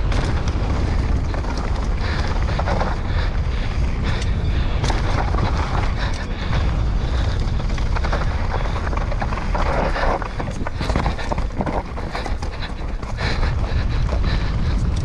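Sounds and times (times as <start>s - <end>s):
bike clicking and rattling: 0.0s - 15.0s
wind buffeting microphone: 0.0s - 15.0s.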